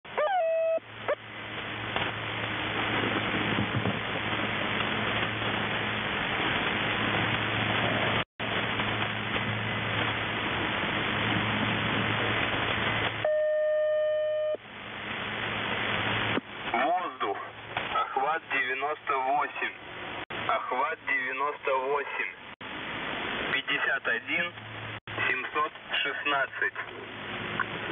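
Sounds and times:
low hum: 0:00.0 - 0:16.8
radio static hiss: 0:15.7 - 0:19.8, 0:20.4 - 0:22.6, 0:23.4 - 0:27.9.

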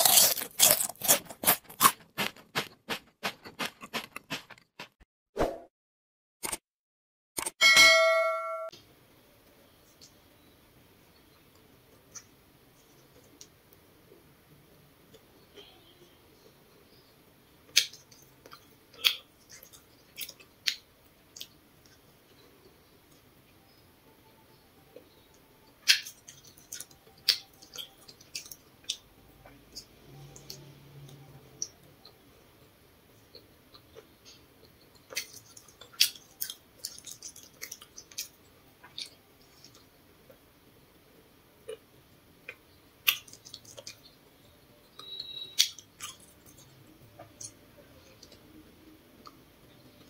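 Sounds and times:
sharp crunches and crackles: 0:00.0 - 0:04.9
person chewing crunchy food: 0:00.0 - 0:05.0, 0:17.7 - 0:22.0, 0:25.8 - 0:40.4, 0:42.4 - 0:44.1, 0:45.0 - 0:48.4.

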